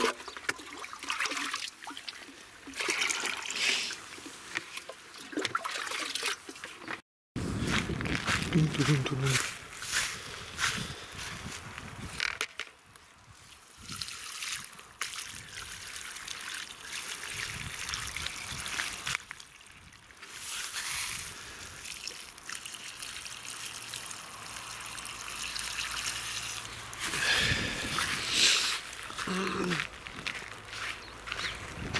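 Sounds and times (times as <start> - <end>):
water trickling and pouring: 0.0 - 7.0, 13.4 - 29.2.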